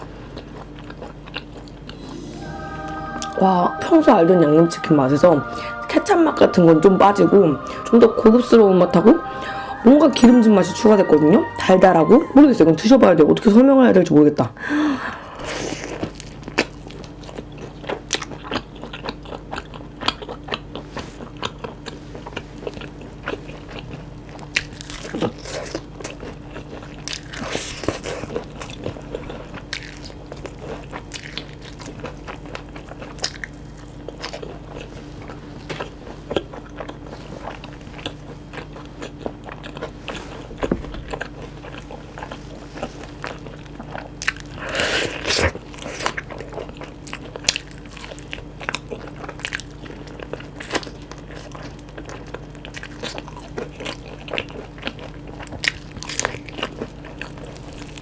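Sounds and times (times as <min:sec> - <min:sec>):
crisp chewing crunches: 0:00.0 - 0:02.0, 0:15.8 - 0:58.0
faint steady hum: 0:00.0 - 0:58.0.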